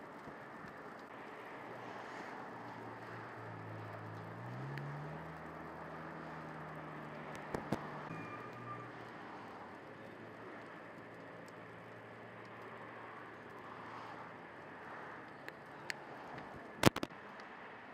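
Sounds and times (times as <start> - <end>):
fire burning with rushing noise: 0.0 - 17.9
vehicle engine running: 1.1 - 15.2
sharp pops in fire: 16.8 - 17.1.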